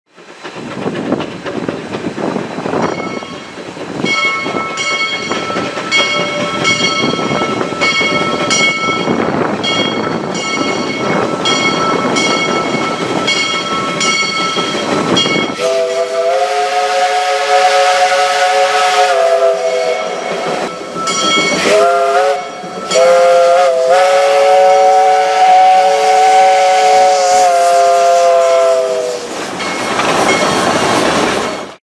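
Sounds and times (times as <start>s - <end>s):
steam locomotive exhaust and steam: 0.1s - 31.8s
bell ringing: 2.9s - 15.6s, 19.9s - 23.3s
steam whistle blasts: 15.5s - 20.8s, 21.6s - 29.4s.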